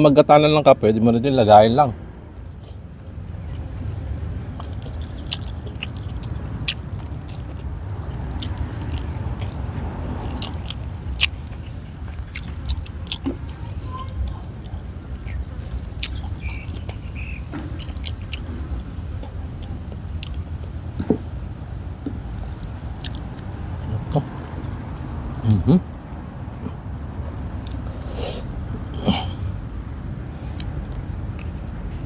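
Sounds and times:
low background rumble: 0.0 - 32.0
person chewing food: 2.5 - 21.4, 22.2 - 24.8, 27.6 - 29.6, 30.2 - 32.0.

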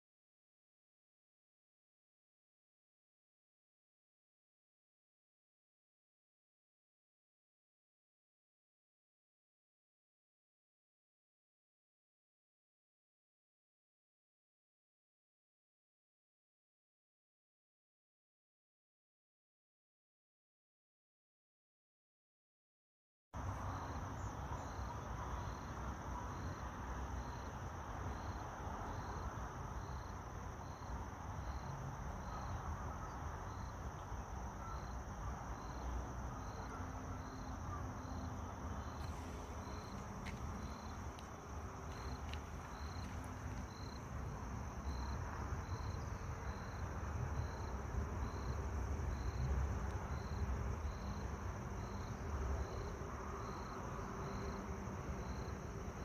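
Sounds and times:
insect high trill: 36.4 - 49.5.

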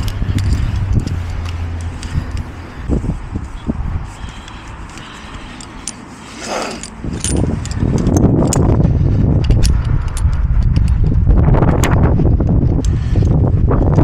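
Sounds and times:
low rumble of microphone handling: 0.0 - 4.9, 6.8 - 14.0
metal carabiners clinking: 0.0 - 12.0
rope rustling: 0.0 - 14.0.

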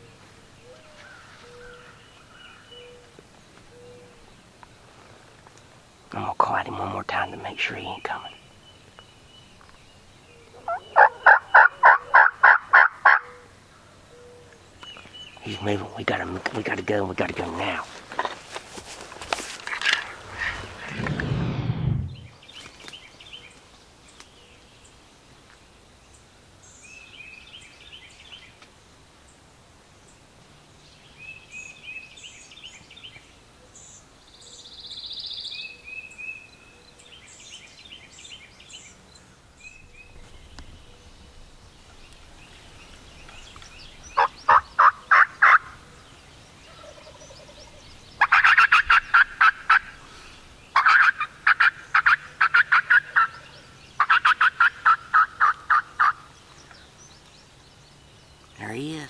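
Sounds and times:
turkey gobbling: 10.6 - 13.4, 44.2 - 45.8, 48.2 - 50.0, 50.8 - 56.2.

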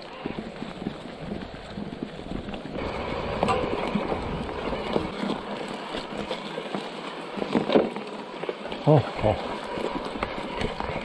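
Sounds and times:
bike knocking and rattling: 0.0 - 11.0
grass swishing against bike: 0.0 - 11.0.

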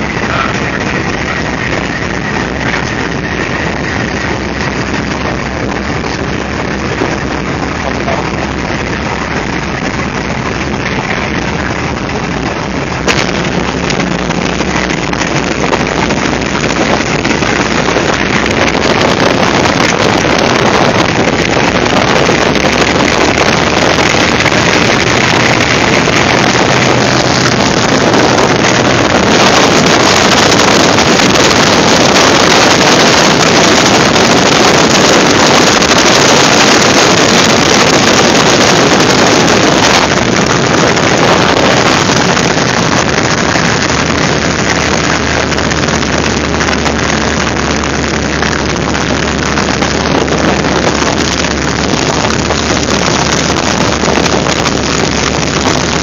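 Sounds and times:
radial aircraft engine running: 0.0 - 56.0
wind rushing over microphone: 0.0 - 56.0.

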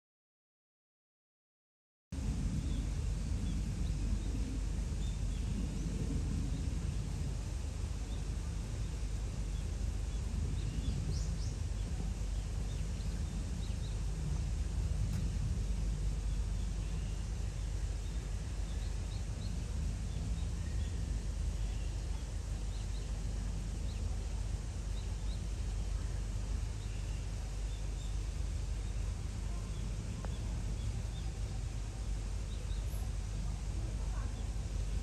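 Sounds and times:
low outdoor rumble: 2.1 - 35.0.

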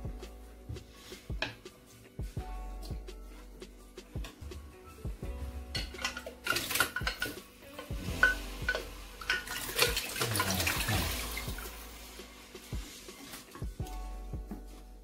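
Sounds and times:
soup pouring and splashing into pot: 8.0 - 12.1.

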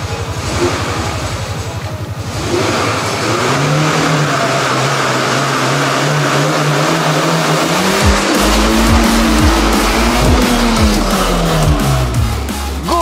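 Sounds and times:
car engine idling and revving: 0.0 - 13.0.

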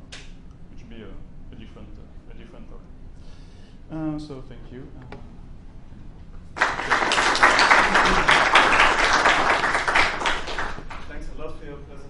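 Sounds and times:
audience applauding: 6.6 - 11.1.

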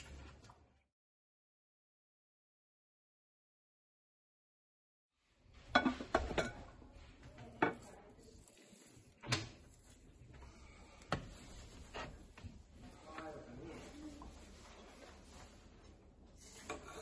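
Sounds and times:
soft scraping: 9.7 - 17.0.

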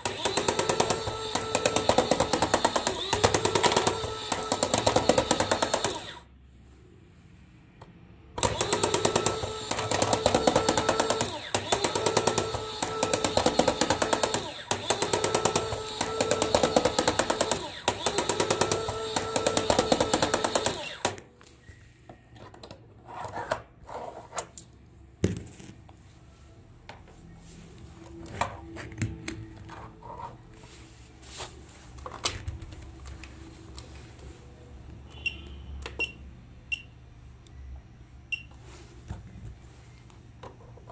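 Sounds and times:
toy motor and gears rattling: 0.0 - 6.2, 8.4 - 21.1.

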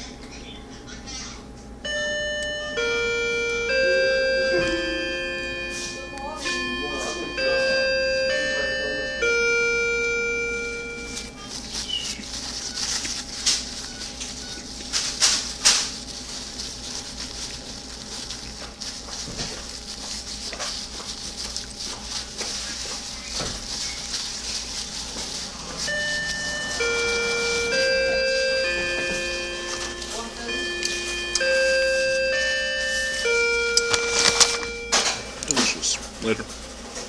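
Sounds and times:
person chewing and lip-smacking: 11.0 - 30.2.

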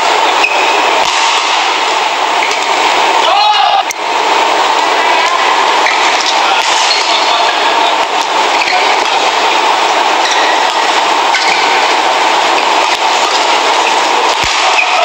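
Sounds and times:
crowd noise: 0.0 - 15.0
rackets hitting shuttlecock: 0.4 - 1.6, 5.9 - 7.2, 14.3 - 15.0.

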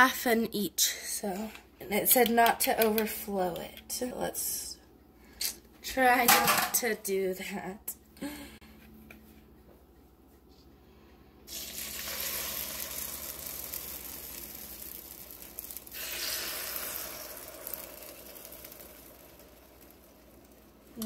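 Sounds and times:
egg sizzling on hot plates: 11.5 - 21.0.

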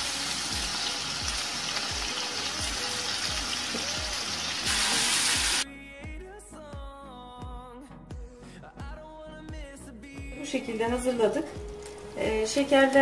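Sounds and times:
sugar sizzling in a frying pan: 0.0 - 5.6
background music with steady beat: 0.0 - 13.0.

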